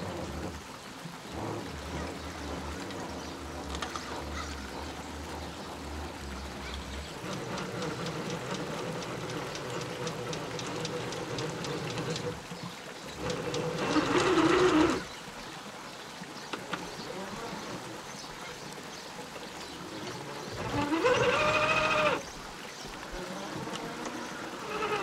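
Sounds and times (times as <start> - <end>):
electric motor whine: 6.0 - 15.1, 20.0 - 22.2, 23.1 - 25.0.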